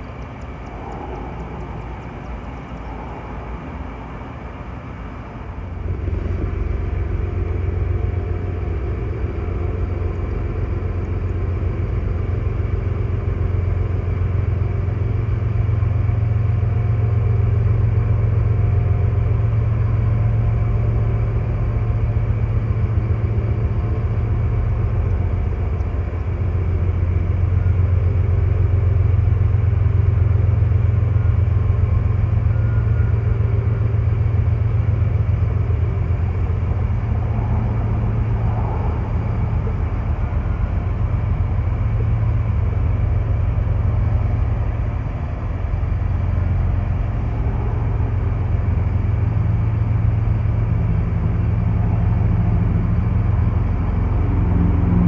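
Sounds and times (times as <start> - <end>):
diesel locomotive engines droning: 0.0 - 55.0.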